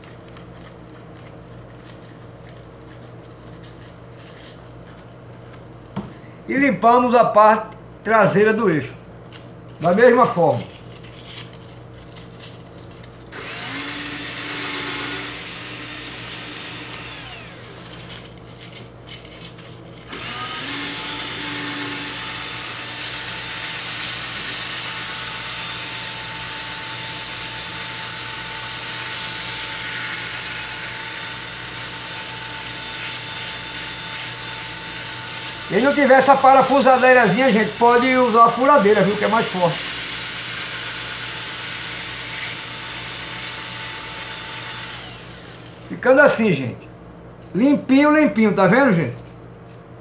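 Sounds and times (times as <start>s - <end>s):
cordless drill motor whine: 13.3s - 18.4s, 20.0s - 46.0s.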